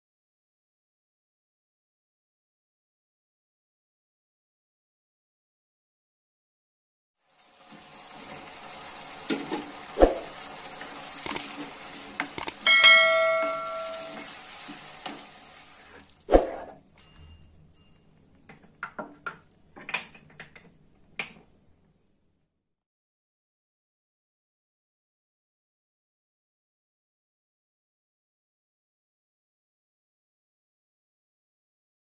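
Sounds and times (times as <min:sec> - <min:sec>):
vegetables sizzling in a pan: 0:07.2 - 0:16.3
ringing tone: 0:12.6 - 0:14.3.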